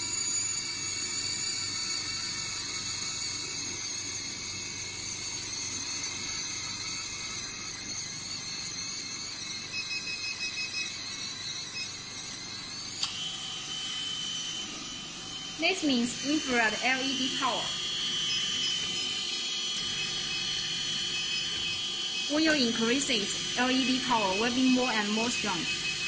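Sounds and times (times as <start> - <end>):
machine high-pitched whine: 0.0 - 26.0.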